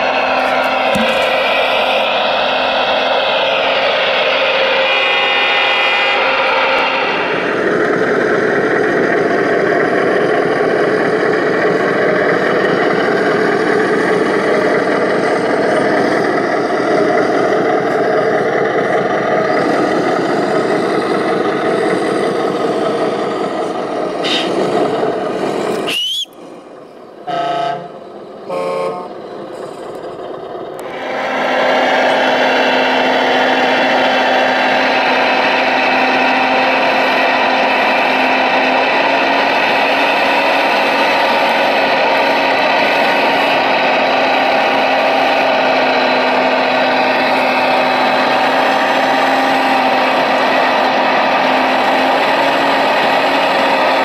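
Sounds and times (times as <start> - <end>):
horn toots: 27.3 - 29.1.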